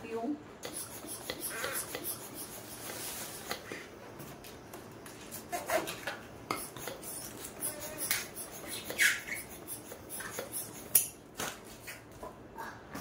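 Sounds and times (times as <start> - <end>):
balloon rubbing and squeaking: 0.7 - 3.6, 6.6 - 10.9.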